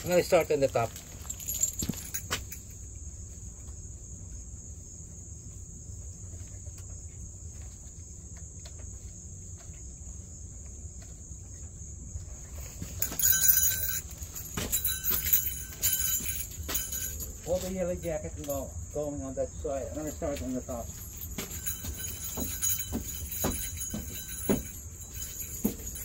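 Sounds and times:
metal equipment jingling: 0:00.0 - 0:02.7, 0:12.8 - 0:18.2, 0:20.0 - 0:26.0
high-pitched insect trill: 0:00.0 - 0:26.0.

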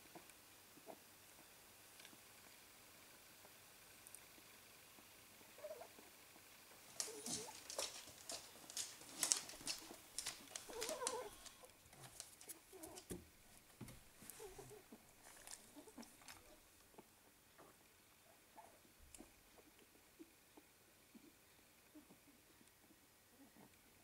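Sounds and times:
clicks and rustles of movement: 0:06.8 - 0:16.6
puppies squeaking: 0:06.9 - 0:13.2.

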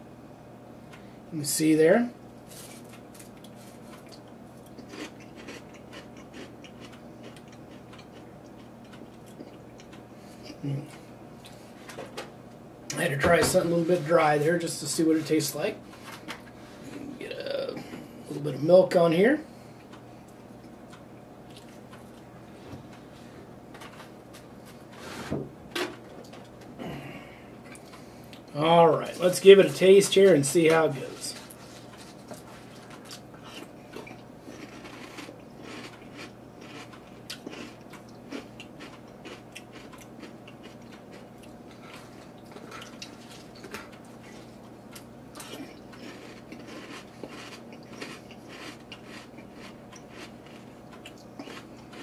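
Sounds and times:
low room hum: 0:00.0 - 0:52.0
person chewing crunchy cereal: 0:02.5 - 0:12.0, 0:30.9 - 0:52.0.

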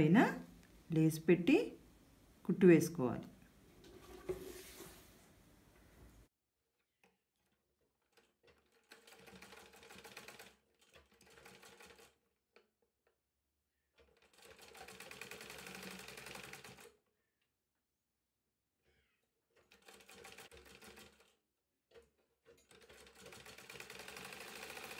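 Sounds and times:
sewing machine stitching: 0:08.0 - 0:12.2, 0:14.0 - 0:16.9, 0:19.5 - 0:24.9.

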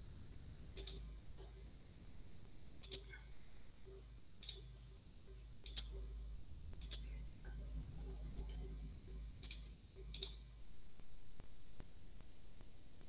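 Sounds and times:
low hum: 0:00.0 - 0:13.0
computer mouse clicks: 0:00.8 - 0:01.2, 0:02.8 - 0:03.3, 0:03.9 - 0:04.8, 0:05.6 - 0:06.1, 0:06.8 - 0:07.2, 0:09.4 - 0:10.5.

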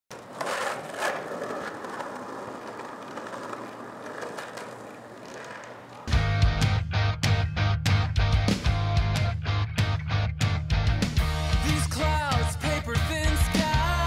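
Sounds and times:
skateboard wheels rolling on pavement: 0:00.1 - 0:06.1.

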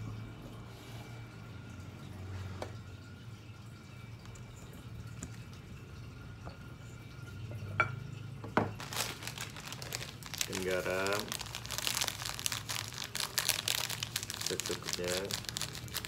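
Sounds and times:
plastic packet rustling: 0:08.7 - 0:16.0.

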